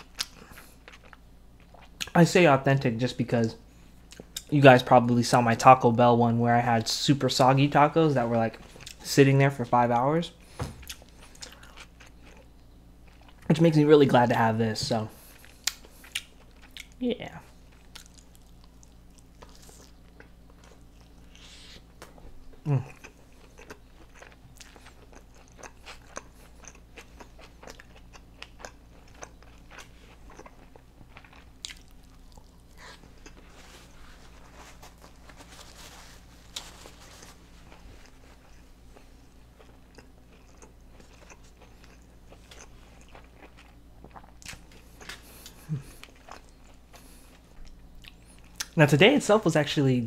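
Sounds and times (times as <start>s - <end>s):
faint steady hum: 0.0s - 50.0s
paper napkin rustling: 33.4s - 38.4s.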